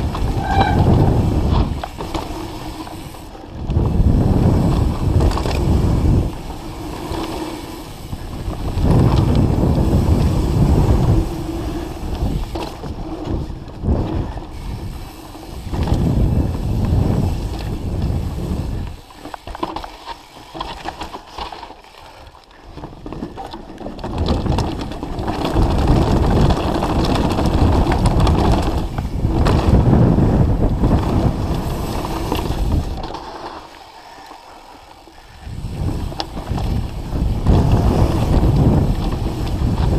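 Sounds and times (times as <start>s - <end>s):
wind buffeting microphone: 0.0s - 19.1s, 24.0s - 33.2s, 35.2s - 39.9s
mountain bike rattling on dirt trail: 0.0s - 39.9s
bike knocking over bumps: 22.9s - 33.4s.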